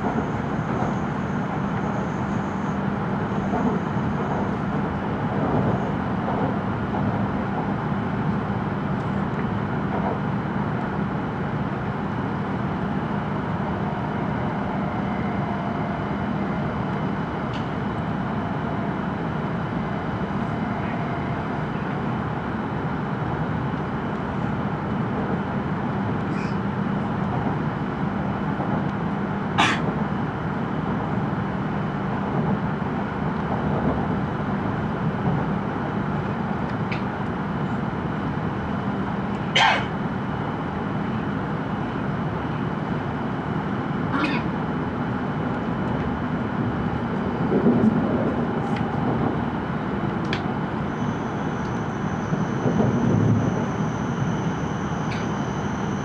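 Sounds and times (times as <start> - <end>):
train running at speed: 0.0 - 56.0.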